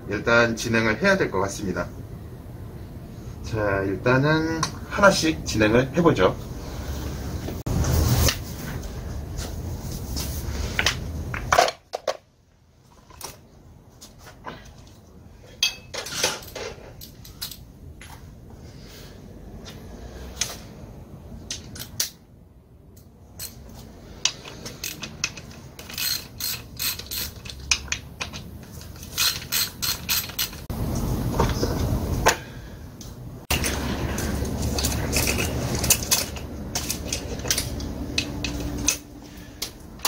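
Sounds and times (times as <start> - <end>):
tools and metal parts clinking: 14.7 - 17.7, 21.4 - 22.2, 23.0 - 30.7, 33.5 - 40.0
handling noise: 33.5 - 39.2.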